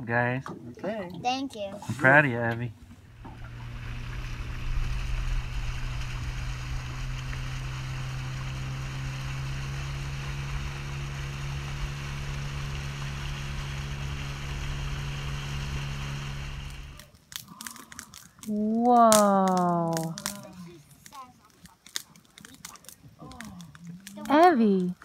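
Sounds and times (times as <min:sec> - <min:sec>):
outboard motor running: 0:01.9 - 0:21.0
water rushing past hull: 0:02.9 - 0:17.0.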